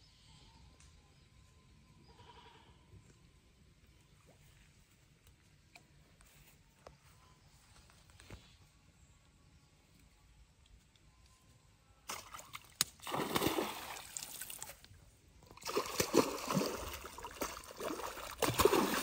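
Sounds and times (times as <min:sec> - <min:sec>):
fish splashing in water: 0:12.1 - 0:14.7, 0:15.6 - 0:19.0.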